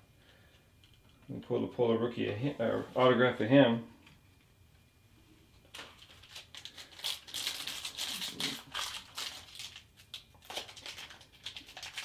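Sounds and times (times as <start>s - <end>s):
foil pack crinkling and tearing: 5.7s - 12.0s.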